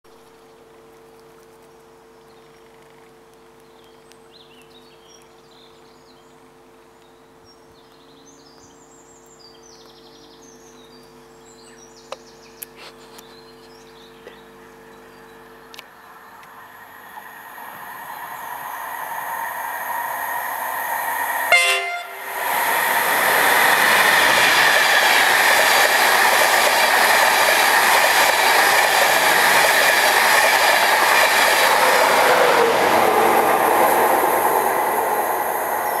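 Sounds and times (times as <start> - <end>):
train rushing past: 16.6 - 36.0
train horn blast: 21.5 - 22.4.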